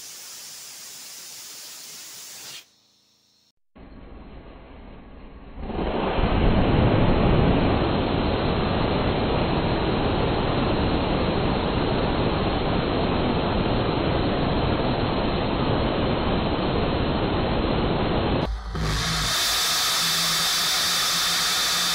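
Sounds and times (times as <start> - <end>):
rocket engine exhaust hissing: 18.4 - 21.9.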